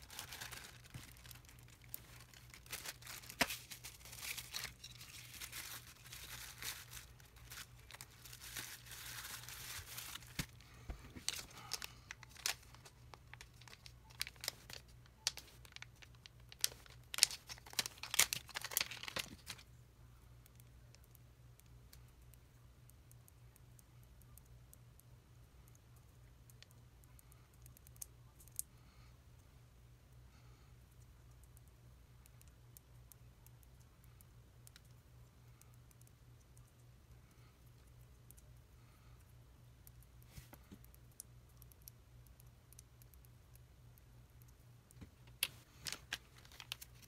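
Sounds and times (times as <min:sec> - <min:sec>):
plastic packaging crinkling: 0:00.0 - 0:19.6, 0:45.4 - 0:47.0
faint low hum: 0:00.0 - 0:47.0.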